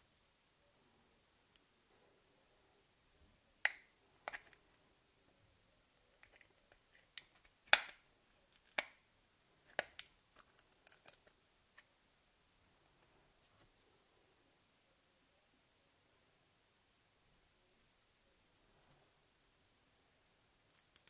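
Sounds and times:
plastic clicks and snaps: 6.2s - 9.0s, 9.7s - 11.3s.

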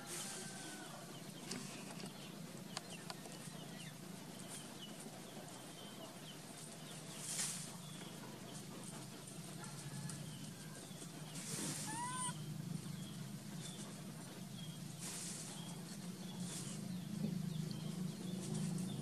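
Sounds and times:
rustling hiss: 0.0s - 2.5s, 6.5s - 12.4s, 14.8s - 17.0s
short high chirps: 11.9s - 12.3s.

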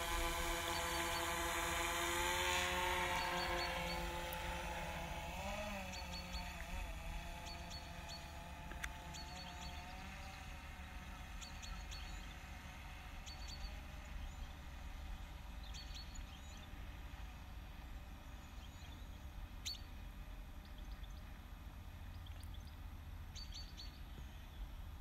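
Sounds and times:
birds chirping: 0.0s - 17.4s.

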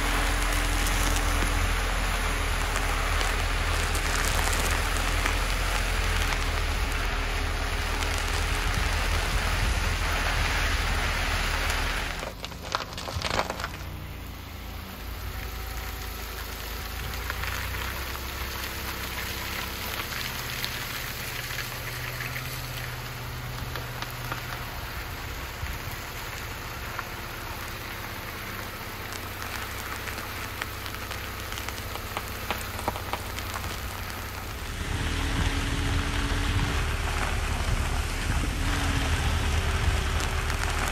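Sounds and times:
car engine rumble: 0.0s - 40.9s
tyres crunching on gravel: 0.0s - 40.9s.

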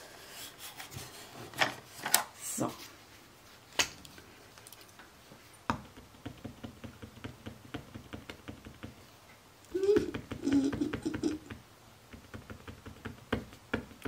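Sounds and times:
pen tapping on paper: 5.7s - 9.0s, 10.0s - 14.0s
woman murmuring: 9.7s - 11.5s.

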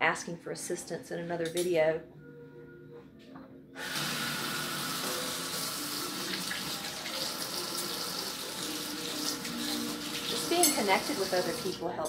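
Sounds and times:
faucet turned on: 3.8s - 11.8s
water running into sink: 3.8s - 11.8s.

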